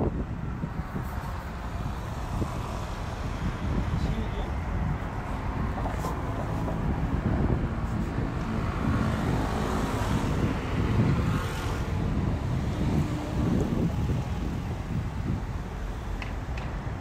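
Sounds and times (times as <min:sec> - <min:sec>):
cars passing: 0:00.0 - 0:17.0
wind rumble on microphone: 0:00.0 - 0:17.0.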